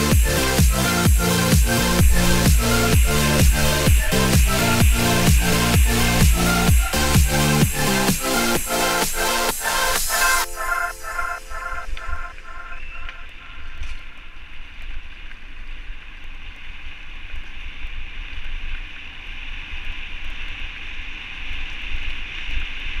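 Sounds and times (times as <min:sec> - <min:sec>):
music: 0:00.0 - 0:13.1.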